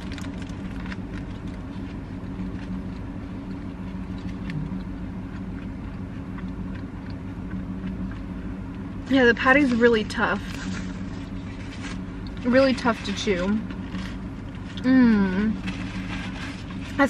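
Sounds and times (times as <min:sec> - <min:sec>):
person chewing food: 0:00.0 - 0:09.0
low hum inside car: 0:00.0 - 0:17.0.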